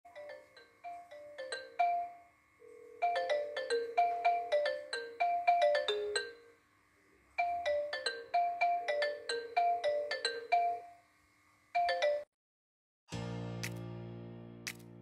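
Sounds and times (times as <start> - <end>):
phone ringtone chiming melody: 0.1 - 6.6, 7.4 - 11.0, 11.8 - 12.3.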